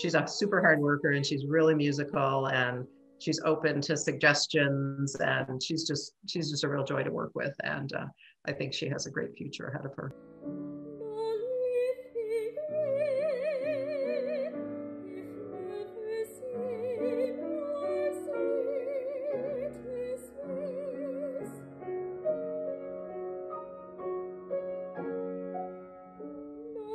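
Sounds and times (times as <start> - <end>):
piano chords: 0.0 - 5.6, 10.0 - 26.9
woman singing operatically: 11.1 - 21.5.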